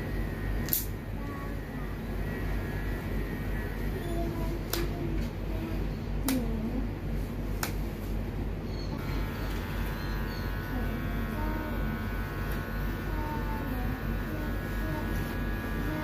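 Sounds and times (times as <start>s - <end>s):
electric pet clipper running: 0.0s - 4.0s, 9.0s - 16.0s
nail clipper snap: 0.6s - 0.9s.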